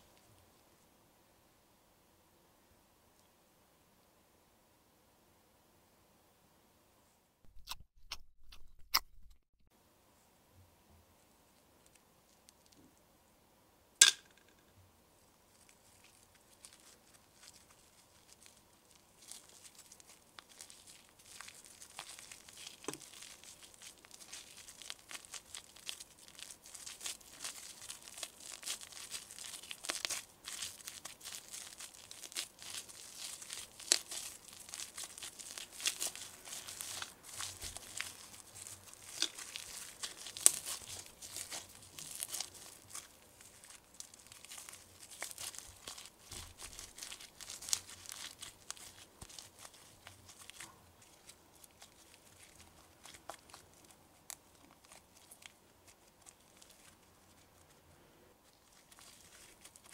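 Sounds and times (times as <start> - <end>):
slime crackling and popping: 15.5 - 57.4, 58.7 - 59.9.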